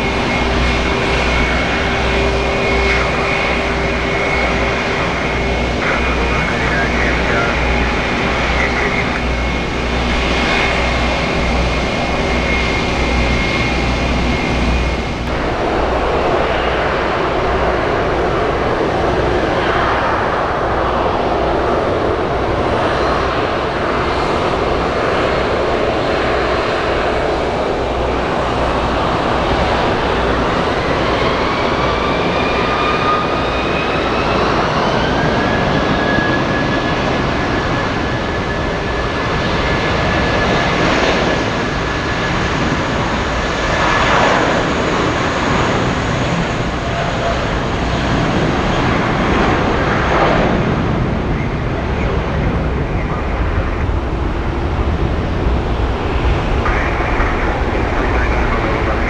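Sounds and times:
jet engine whine rising: 0.0s - 59.0s
jet engines running: 0.0s - 59.0s.

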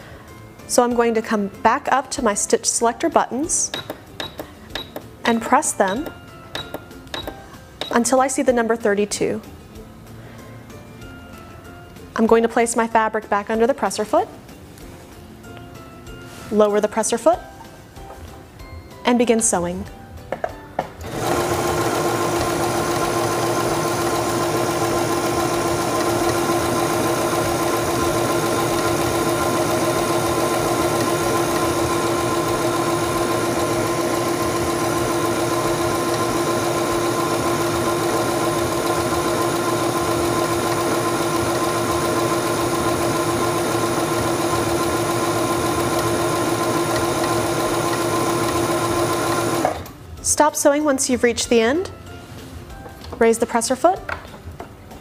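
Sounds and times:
sewing machine whirring: 21.0s - 49.9s.

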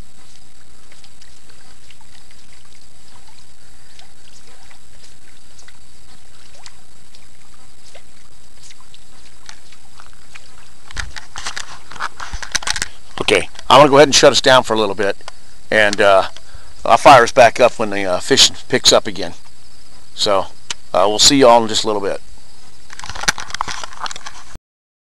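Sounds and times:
steady outdoor hiss: 0.0s - 24.6s
camera handling rustles and knocks: 10.9s - 13.0s, 22.9s - 24.6s.

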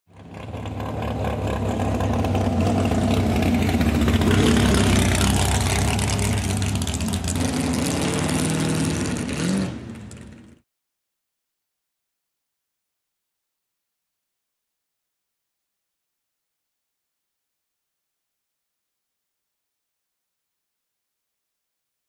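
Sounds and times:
dragster engine passing: 0.1s - 10.6s.

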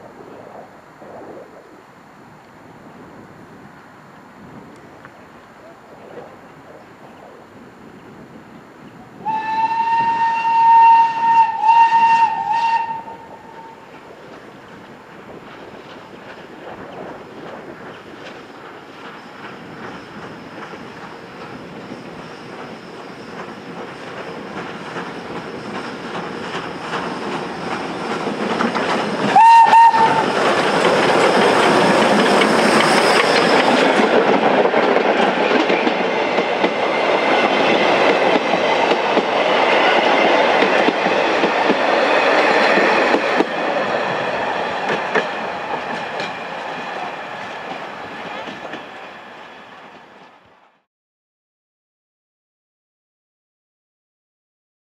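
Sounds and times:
steam locomotive whistle blasts: 9.2s - 14.0s, 29.2s - 30.5s
train wheels clickety-clack on rails: 9.2s - 50.4s.

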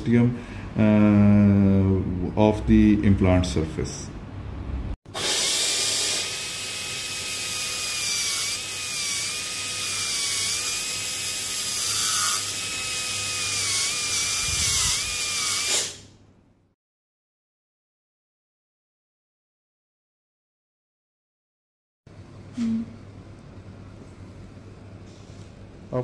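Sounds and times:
dental handpiece whine: 5.2s - 16.0s.

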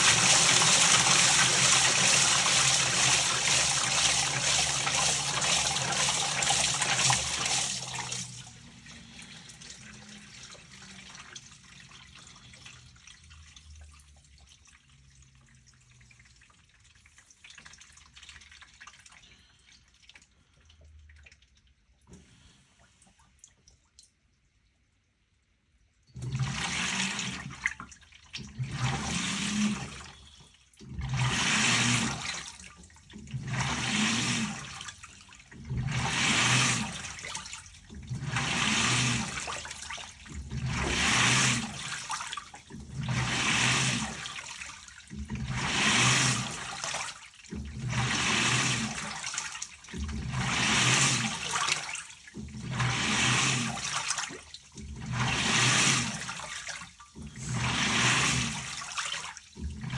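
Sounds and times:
washing machine water churning: 0.0s - 23.7s, 26.1s - 59.9s
low motor hum: 40.2s - 41.9s, 50.0s - 51.5s, 54.8s - 56.4s, 57.2s - 58.8s, 59.6s - 59.9s.

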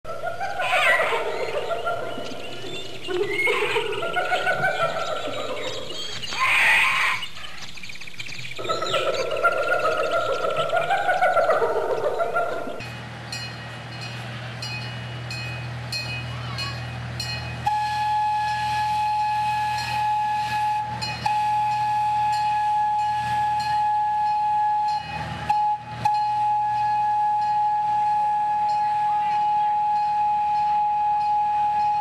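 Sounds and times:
miniature train engine humming: 0.1s - 32.0s
train bell ringing: 12.8s - 32.0s
train horn: 17.6s - 32.0s.

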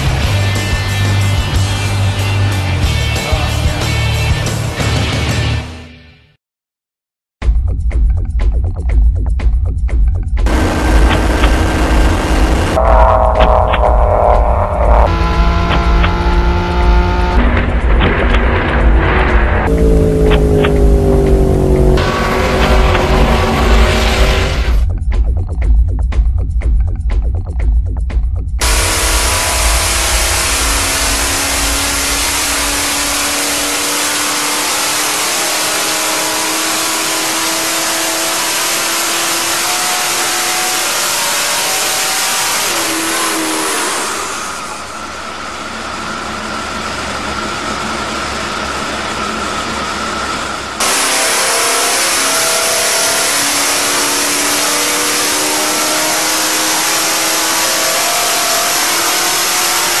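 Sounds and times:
loud diesel engine running: 10.4s - 24.9s, 28.6s - 60.0s.

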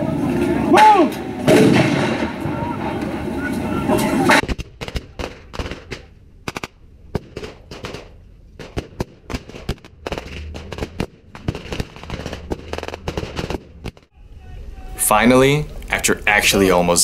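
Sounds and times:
blank gunshots: 1.5s - 2.7s, 4.3s - 14.2s.

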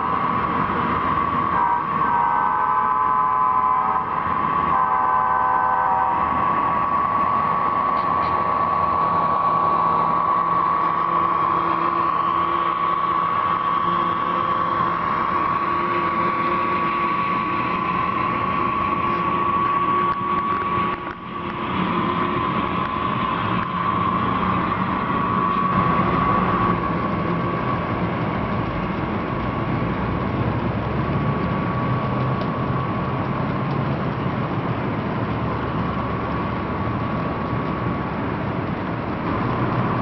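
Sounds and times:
diesel engine running: 0.0s - 40.0s
high whine: 0.0s - 40.0s
locomotive horn: 1.2s - 8.2s, 9.4s - 27.0s.

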